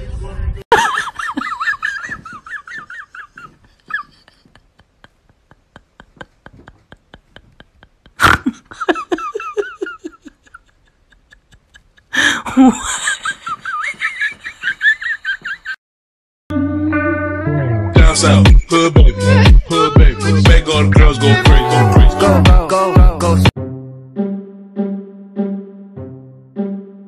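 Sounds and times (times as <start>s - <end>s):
person laughing hard: 0.7s - 15.8s, 19.1s - 22.9s.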